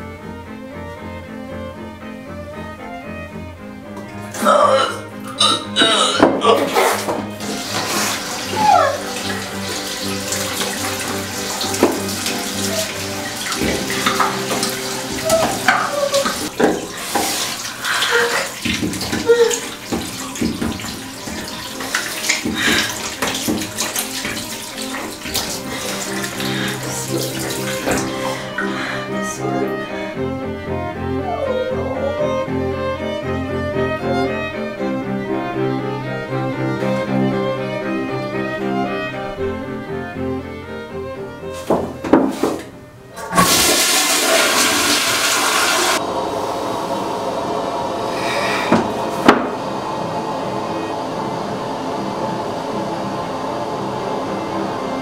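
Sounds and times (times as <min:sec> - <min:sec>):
background music: 0:00.0 - 0:46.0
tap water splashing: 0:05.2 - 0:28.9, 0:41.5 - 0:46.0, 0:48.7 - 0:49.6.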